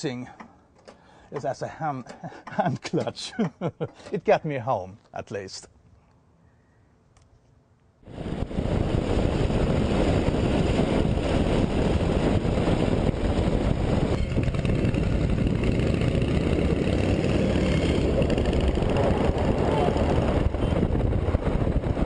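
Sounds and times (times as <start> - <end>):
motorcycle engine running: 12.1 - 22.0.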